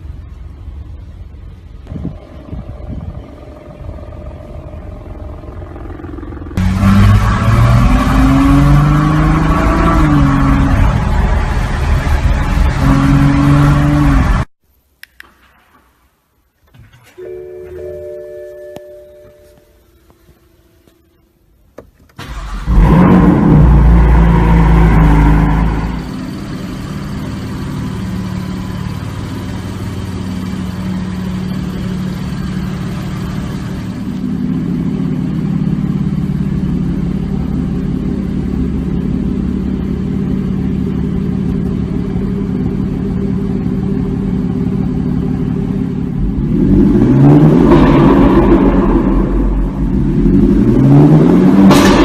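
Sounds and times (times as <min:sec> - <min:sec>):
car engine starting and idling: 0:00.0 - 0:14.5, 0:21.6 - 0:52.0
engine revving blips: 0:01.9 - 0:14.5, 0:22.2 - 0:34.3, 0:45.7 - 0:52.0.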